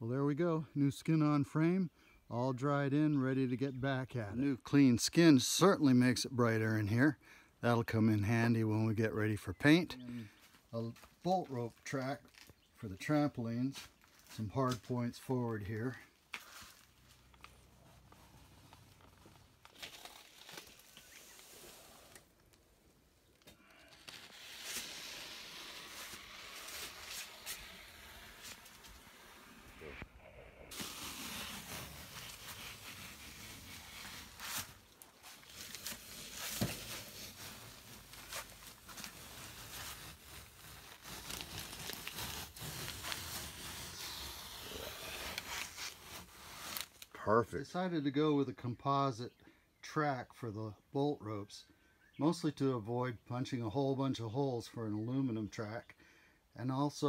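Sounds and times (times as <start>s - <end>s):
steady hiss: 23.7s - 34.8s.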